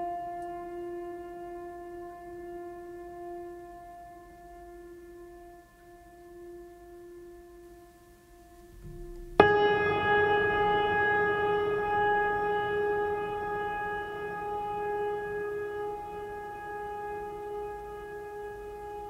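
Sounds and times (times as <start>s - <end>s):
music of long held notes: 0.0s - 19.0s.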